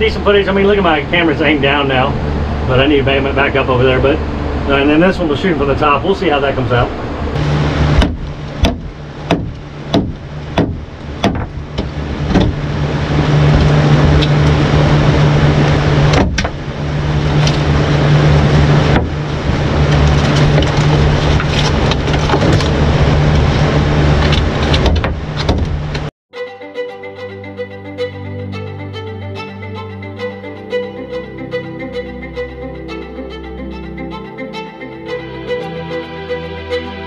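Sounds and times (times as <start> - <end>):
violin music: 0.0 - 23.2, 26.3 - 37.0
sharp knocks: 7.4 - 12.7, 16.1 - 16.6, 18.9 - 19.2, 24.3 - 26.1.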